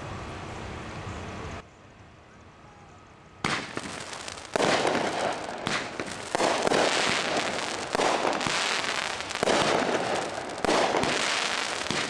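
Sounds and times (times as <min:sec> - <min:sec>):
firework crackling: 0:03.4 - 0:12.0
firework report: 0:03.4 - 0:12.0.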